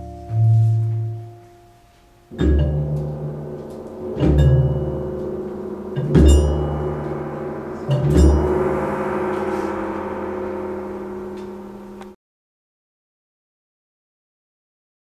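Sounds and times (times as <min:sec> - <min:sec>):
gong struck ringing: 0:02.3 - 0:12.2.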